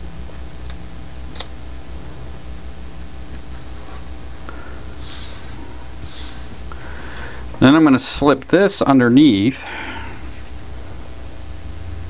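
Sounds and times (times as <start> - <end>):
low hum: 0.0 - 12.0
hands brushing over tape: 1.8 - 6.7.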